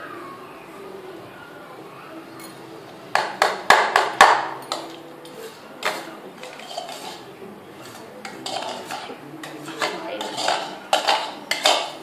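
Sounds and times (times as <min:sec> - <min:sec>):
clinks on a steel plate: 0:08.2 - 0:12.0.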